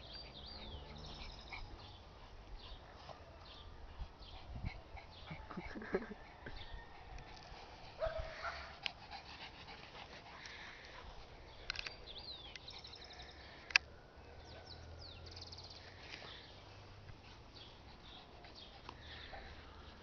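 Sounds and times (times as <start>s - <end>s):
faint dog sounds: 0.0s - 11.6s, 17.2s - 20.0s.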